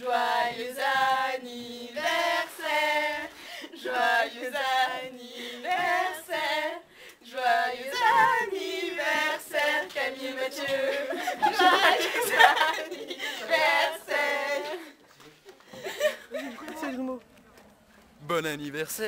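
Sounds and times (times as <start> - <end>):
girls singing unaccompanied: 0.0 - 15.0.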